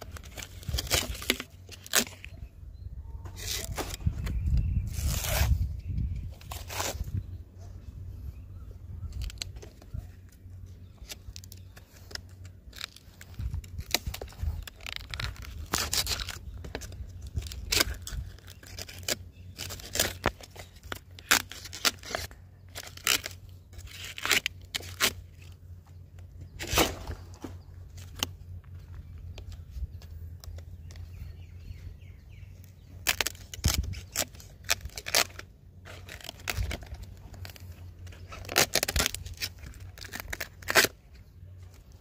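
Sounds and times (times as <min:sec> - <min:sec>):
knife scraping palm fibres: 0:03.3 - 0:07.2, 0:11.1 - 0:25.6, 0:26.5 - 0:28.3, 0:32.9 - 0:41.0.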